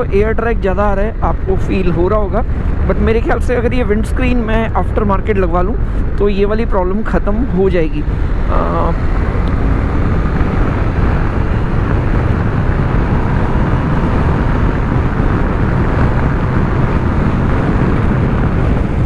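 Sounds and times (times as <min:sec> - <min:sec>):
wind buffeting microphone: 0:00.0 - 0:19.0
motorcycle engine running: 0:07.9 - 0:19.0.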